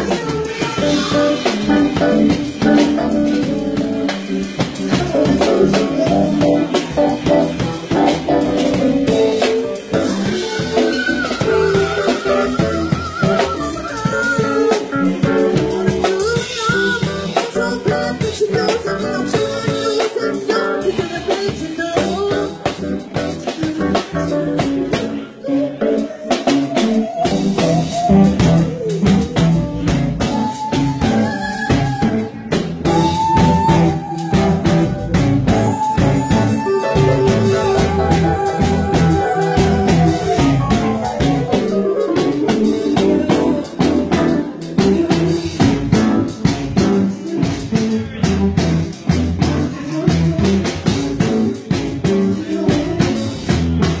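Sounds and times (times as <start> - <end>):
woman singing into a microphone: 0.0 - 7.0
drum kit: 0.0 - 54.0
electric guitar: 0.0 - 54.0.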